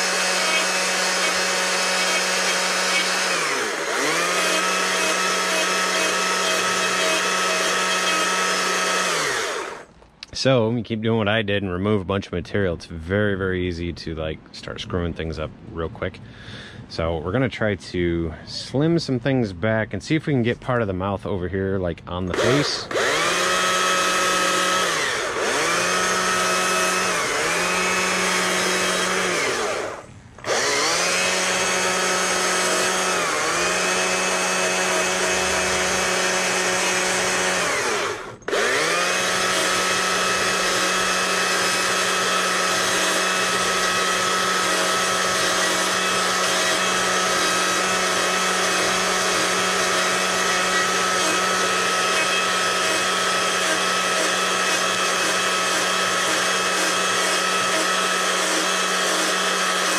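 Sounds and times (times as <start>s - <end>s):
chainsaw cutting wood: 0.0s - 9.9s, 22.3s - 59.9s.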